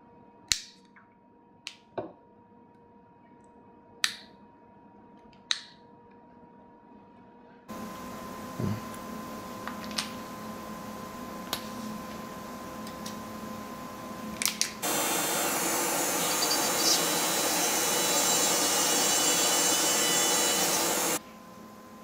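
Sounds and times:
micromotor drill drilling plastic: 14.8 - 21.2.

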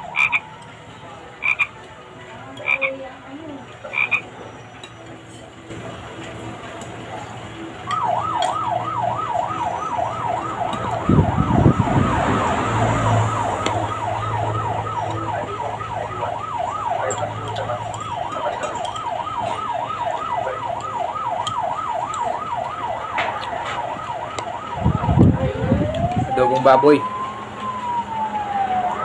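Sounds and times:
electronic siren yelping: 0.0 - 0.6, 7.8 - 29.0.

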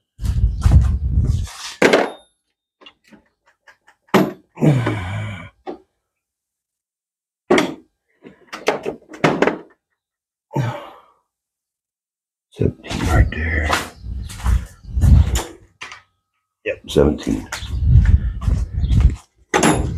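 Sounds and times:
footsteps on concrete floor: 13.0 - 15.3, 17.3 - 19.4.

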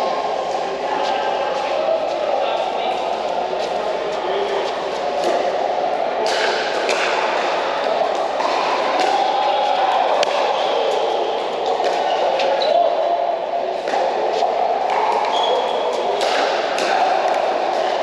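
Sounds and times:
indoor hall background noise: 0.0 - 18.0
shoe squeaks: 15.3 - 15.8.

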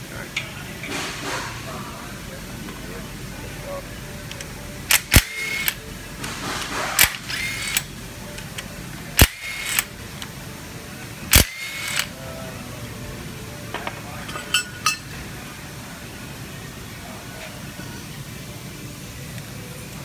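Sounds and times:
cordless drill whirring: 7.0 - 7.9, 9.2 - 9.9, 11.4 - 12.1.

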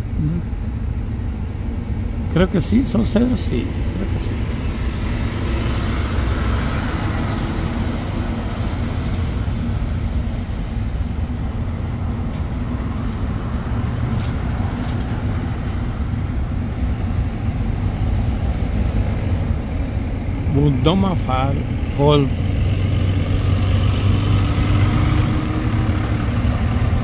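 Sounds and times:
highway traffic rumble: 0.0 - 27.0
truck driving alongside: 0.0 - 27.0.

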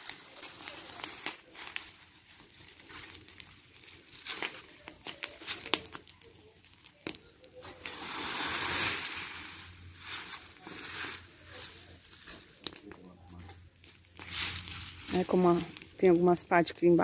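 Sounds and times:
crackling fire: 0.0 - 17.0
rake scraping through dry branches: 7.6 - 12.8, 13.9 - 16.4.

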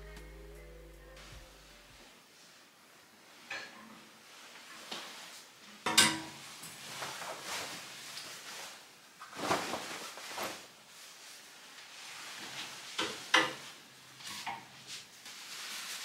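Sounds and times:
coat fabric rustling: 6.8 - 12.8.

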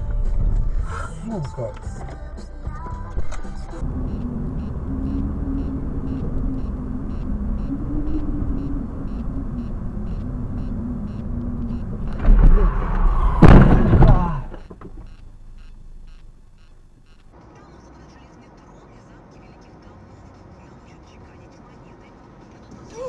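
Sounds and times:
road noise inside car: 0.0 - 23.0
car engine: 3.1 - 23.0
low hum: 3.2 - 17.3
heavy jolt: 12.0 - 14.6
car collision crash with ringing: 12.2 - 14.6.

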